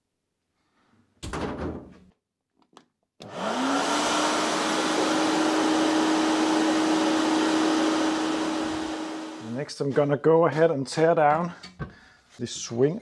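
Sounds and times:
sandblasting motor whine: 3.3 - 9.5.

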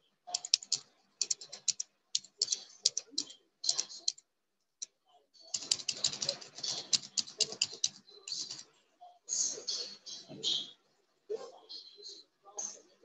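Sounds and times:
typing on keyboard: 0.3 - 4.2, 4.8 - 8.7.

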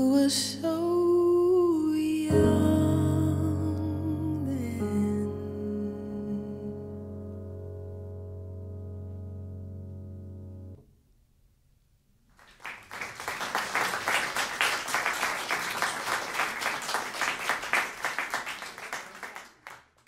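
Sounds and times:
small audience applauding: 12.3 - 20.0.

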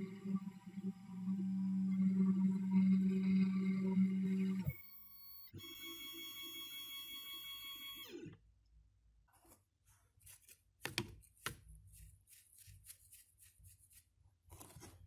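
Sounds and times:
hand rubbing and scraping: 9.3 - 15.0.

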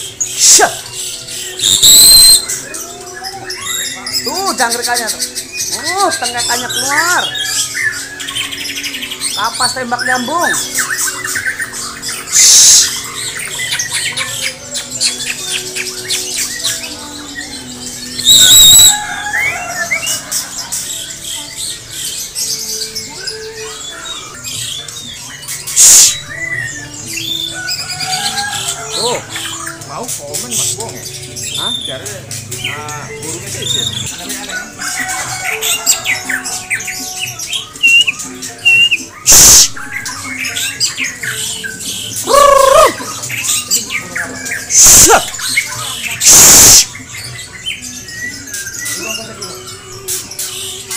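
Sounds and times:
loud harsh bird squawk: 0.0 - 4.3, 10.1 - 14.6, 18.2 - 20.9, 25.6 - 26.8, 34.6 - 41.3, 42.2 - 43.8, 44.5 - 47.2
harsh rasping bird notes: 0.0 - 50.9
songbirds chirping and whistling: 0.0 - 50.9.

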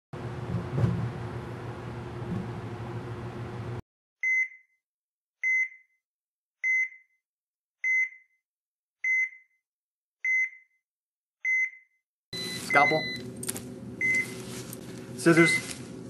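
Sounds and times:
heart monitor beeping: 4.2 - 4.7, 5.4 - 5.9, 6.6 - 7.2, 7.8 - 8.4, 9.0 - 9.6, 10.2 - 10.8, 11.4 - 11.8, 12.4 - 13.3, 14.0 - 14.4.

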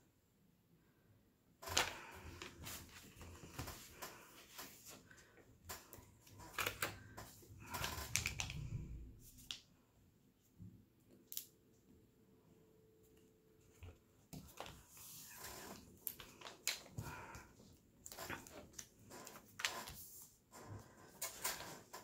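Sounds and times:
film rustling: 1.6 - 9.6, 13.8 - 22.0.

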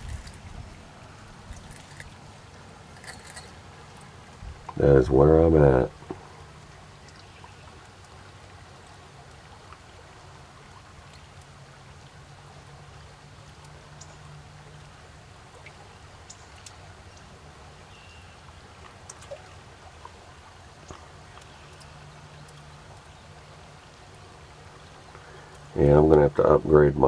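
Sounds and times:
water pouring into a pool: 0.0 - 4.3, 6.2 - 26.4
faint ticks: 13.4 - 14.4, 15.6 - 17.3, 20.8 - 23.2, 24.8 - 26.2.

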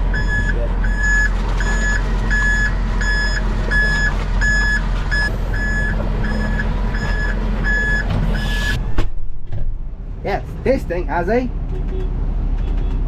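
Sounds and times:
machine engine rumbling: 0.0 - 13.0
vehicle reversing alarm beeping: 0.1 - 8.8.

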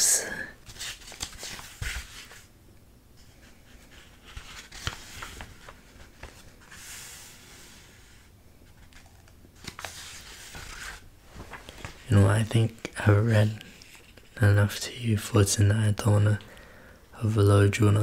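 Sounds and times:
book pages rustling: 0.6 - 2.5, 3.2 - 14.4.

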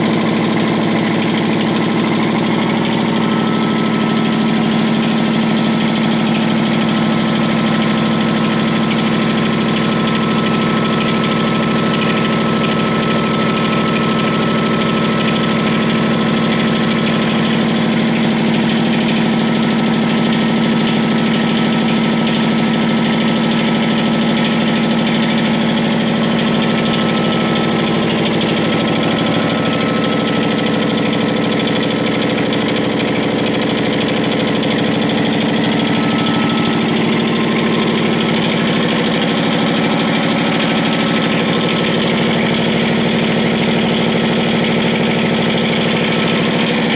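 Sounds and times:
air compressor running: 0.0 - 46.9.

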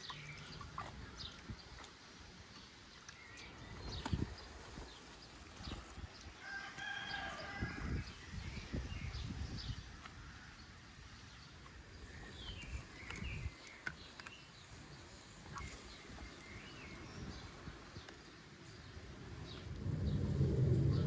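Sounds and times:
birds calling and chirping: 0.0 - 21.0
low rumbling: 19.2 - 21.0.

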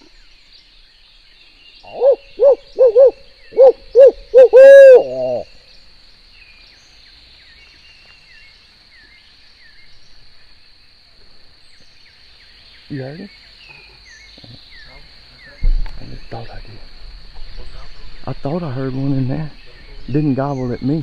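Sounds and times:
faint birdsong: 0.0 - 21.0
owl call hoots: 1.8 - 5.6.

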